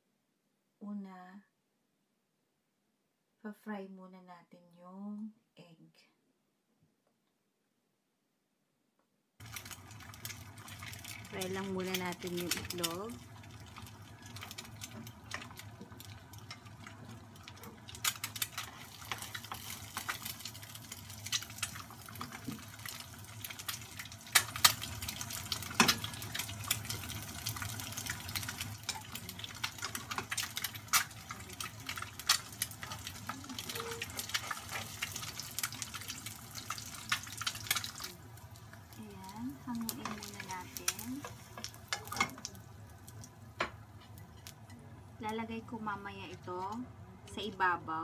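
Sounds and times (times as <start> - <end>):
egg sizzling in oil: 9.4 - 44.8
spattering oil crackles and pops: 9.4 - 45.3.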